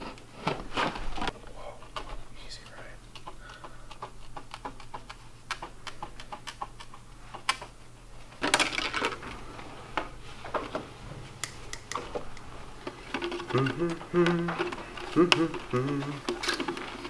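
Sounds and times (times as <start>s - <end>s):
plastic crackling clatter: 8.4s - 10.9s, 11.9s - 17.0s.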